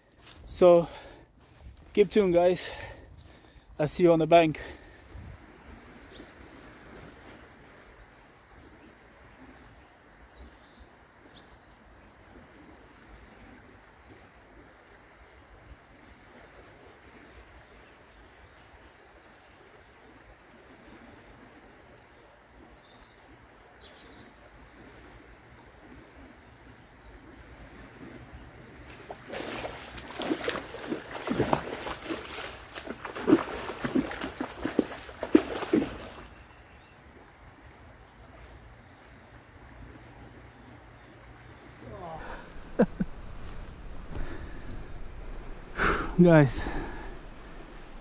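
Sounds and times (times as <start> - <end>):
small birds chirping: 0.0 - 20.4, 26.3 - 48.0
low river wash: 0.0 - 48.0
fish thrashing and splashing: 28.9 - 36.3
steady low hiss: 41.4 - 48.0.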